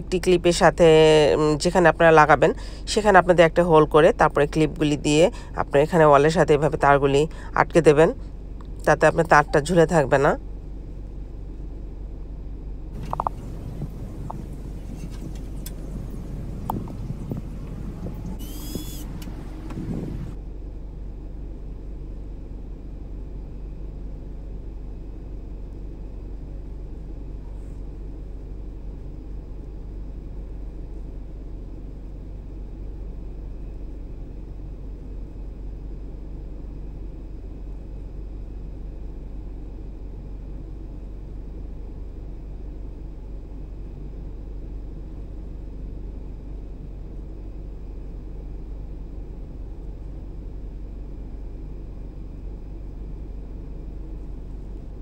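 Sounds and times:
low outdoor rumble: 0:00.0 - 0:55.0
faint steady tones: 0:13.0 - 0:20.4.

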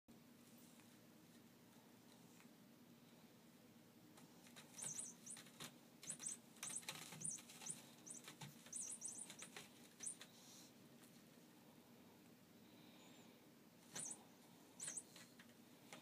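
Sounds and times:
kitten claws scratching rope post: 0:04.4 - 0:10.3.

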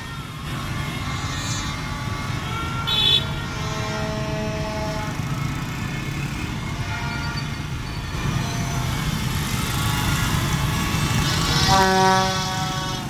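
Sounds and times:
cars driving by: 0:00.0 - 0:13.0
high-pitched car horn toot: 0:06.7 - 0:09.0, 0:11.5 - 0:13.0.

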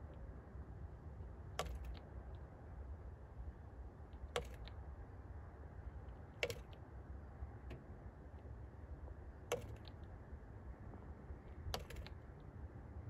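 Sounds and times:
bird pecking on window glass: 0:01.6 - 0:02.1, 0:04.1 - 0:04.8, 0:06.0 - 0:06.8, 0:09.4 - 0:10.1, 0:11.5 - 0:12.2.

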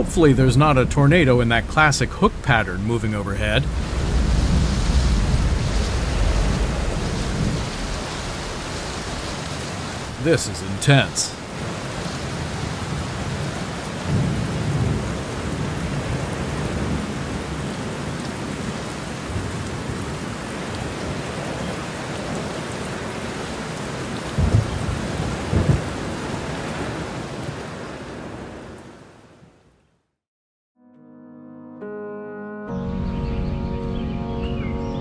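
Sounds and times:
rolling thunder rumble: 0:00.0 - 0:10.3, 0:11.4 - 0:20.3, 0:24.3 - 0:27.0
heavy rain falling: 0:00.0 - 0:29.2
sharp thunder cracks: 0:03.4 - 0:10.3, 0:24.4 - 0:26.2.

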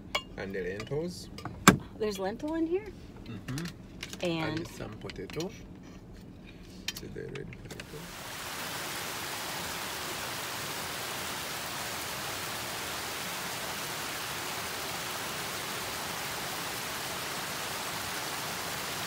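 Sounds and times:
falling water hissing: 0:07.8 - 0:19.0.

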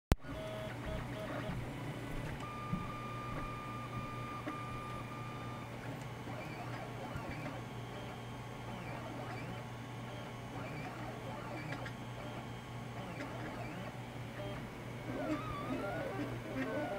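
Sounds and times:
stepper motors whining: 0:13.0 - 0:16.9.

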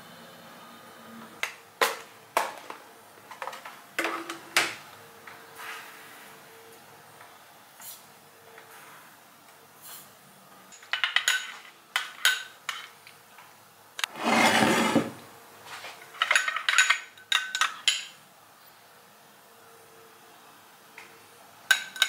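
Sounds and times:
spoon scraping glass bowl: 0:14.1 - 0:15.2.

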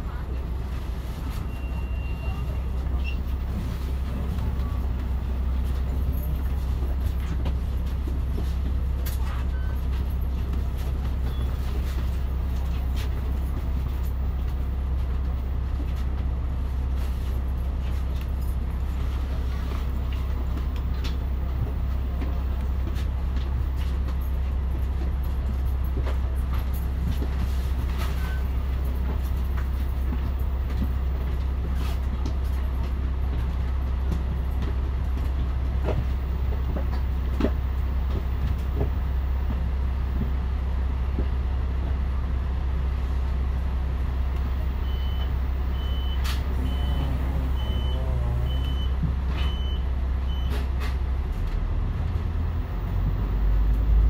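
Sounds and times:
diesel bus engine idling: 0:00.0 - 0:54.0
reversing alarm beeps: 0:44.8 - 0:50.6.

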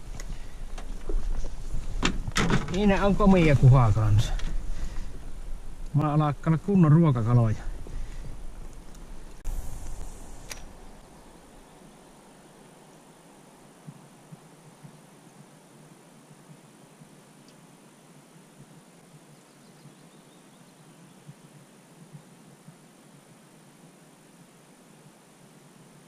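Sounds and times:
low steady hiss: 0:00.0 - 0:26.0.

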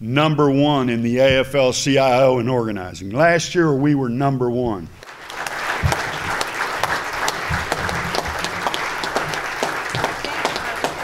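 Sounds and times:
applause with hand claps: 0:05.0 - 0:11.0.

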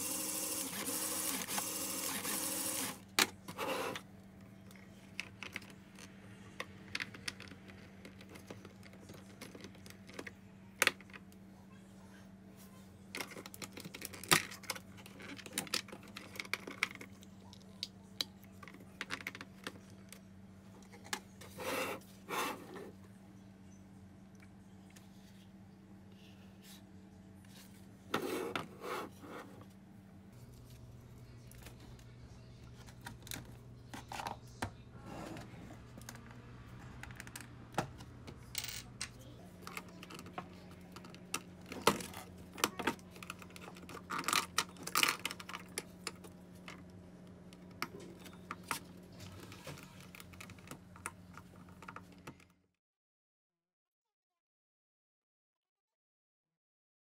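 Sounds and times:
small electric motor humming: 0:00.0 - 0:03.0.

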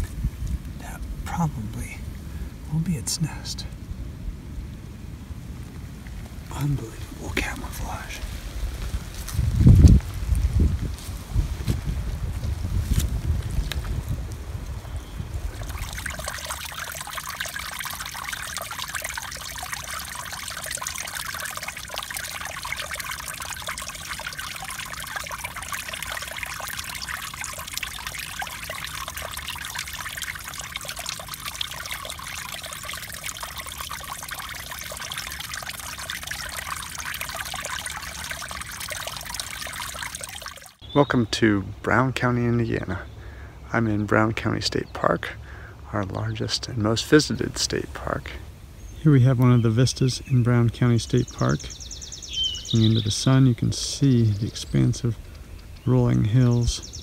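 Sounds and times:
wind rumble on microphone: 0:00.0 - 0:01.4, 0:03.3 - 0:16.4
stream trickling: 0:00.0 - 0:04.0, 0:05.2 - 0:40.9, 0:41.9 - 0:57.0.

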